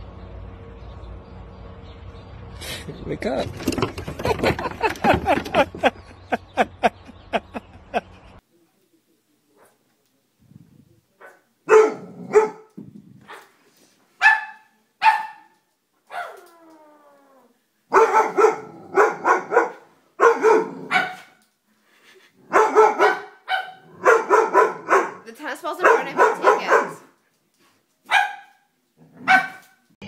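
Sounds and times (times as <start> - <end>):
dog barking: 11.2 - 12.7, 14.2 - 15.5, 16.1 - 16.4, 17.9 - 21.4, 22.5 - 27.1, 28.1 - 29.8.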